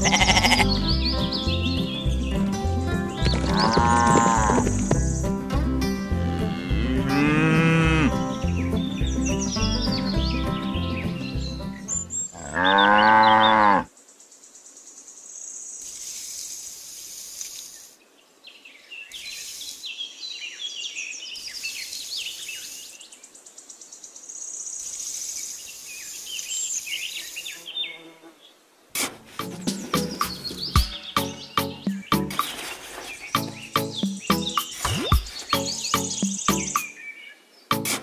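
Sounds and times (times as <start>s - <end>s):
cow mooing: 0.0s - 0.7s, 3.5s - 4.7s, 6.3s - 8.2s, 12.3s - 13.9s
bird chirps: 0.0s - 5.4s, 8.1s - 17.9s, 29.4s - 38.0s
background music: 0.0s - 12.3s, 29.0s - 32.6s, 33.3s - 36.9s, 37.7s - 38.0s
insect buzzing: 14.6s - 18.0s.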